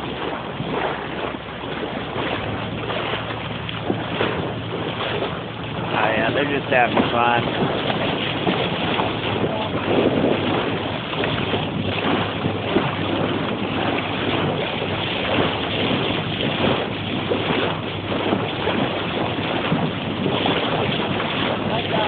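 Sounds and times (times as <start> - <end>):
water rushing from boat bow wave: 0.0 - 22.0
wind buffeting microphone: 0.0 - 22.0.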